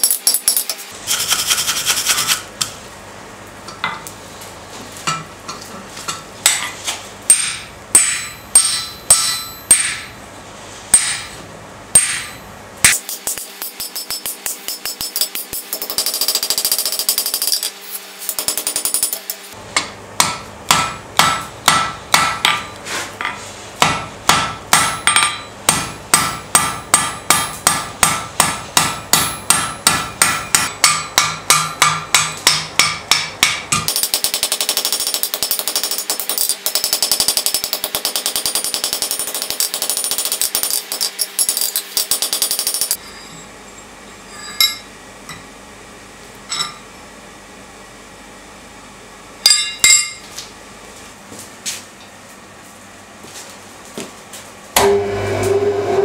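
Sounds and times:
hammer striking steel on anvil: 0:05.0 - 0:10.2, 0:10.9 - 0:43.1, 0:44.4 - 0:45.5, 0:46.5 - 0:46.8, 0:49.4 - 0:50.2, 0:54.8 - 0:56.0.

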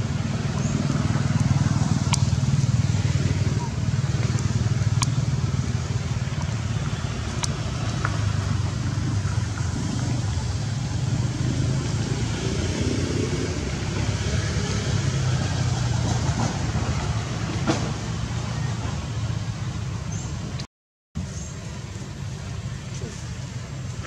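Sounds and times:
low engine rumble: 0:00.0 - 0:20.6, 0:21.2 - 0:24.0
constant hiss: 0:21.2 - 0:24.0.

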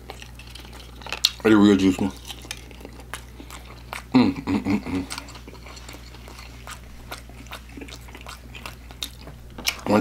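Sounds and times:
person chewing food: 0:00.0 - 0:10.0
person humming: 0:04.1 - 0:05.1.

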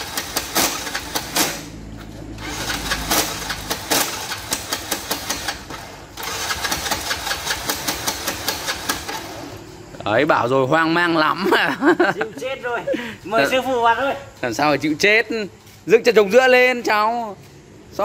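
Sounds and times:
motorbike starter cranking: 0:00.0 - 0:09.7.

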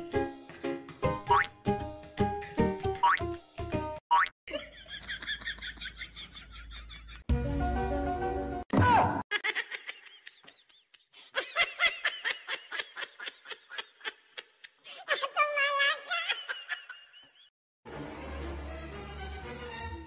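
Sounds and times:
person laughing: 0:04.5 - 0:07.2, 0:09.3 - 0:17.5.

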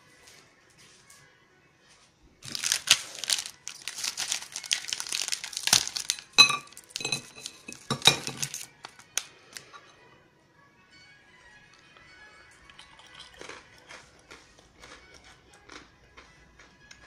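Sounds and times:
brittle bar breaking: 0:02.4 - 0:09.3
candy wrapper crinkling: 0:02.4 - 0:09.7, 0:12.6 - 0:15.8
pieces clinking on ceramic plate: 0:02.4 - 0:09.9.

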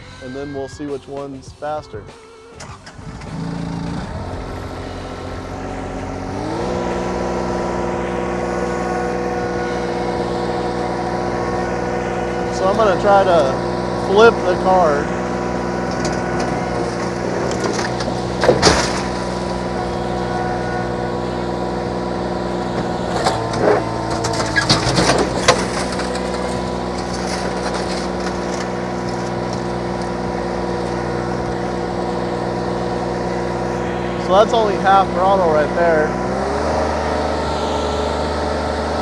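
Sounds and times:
diesel engine running: 0:00.0 - 0:39.0
car body crunching and scraping: 0:14.7 - 0:21.2, 0:22.4 - 0:32.4.

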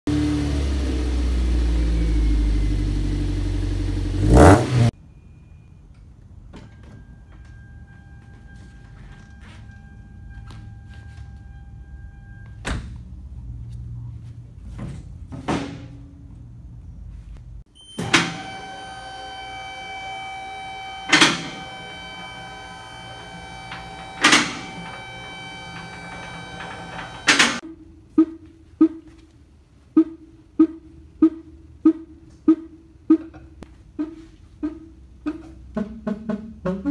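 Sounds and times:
steady ringing tone: 0:06.6 - 0:12.6, 0:17.8 - 0:27.6.

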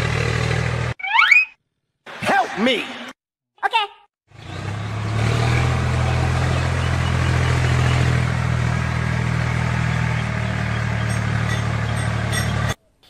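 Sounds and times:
tractor engine hum: 0:00.0 - 0:01.0, 0:04.3 - 0:12.8.

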